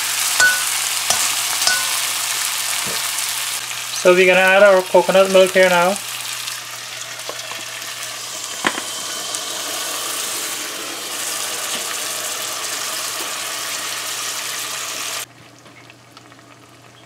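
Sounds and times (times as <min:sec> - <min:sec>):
liquid splashing and sizzling in oil: 0:00.0 - 0:04.0
sharp metal clink: 0:00.4 - 0:02.1.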